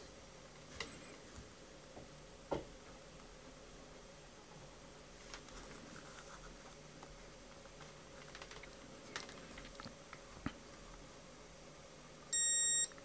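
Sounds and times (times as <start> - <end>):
multimeter continuity beep: 12.3 - 13.0.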